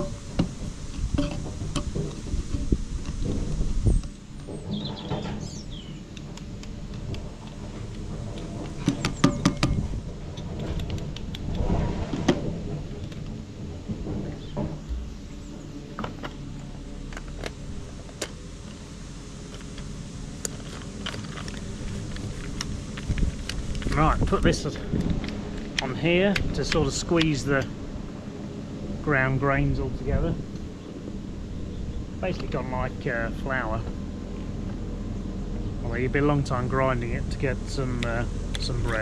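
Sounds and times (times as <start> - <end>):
low machine hum: 0.0 - 39.0
hand grinder crunching grain: 19.5 - 27.4.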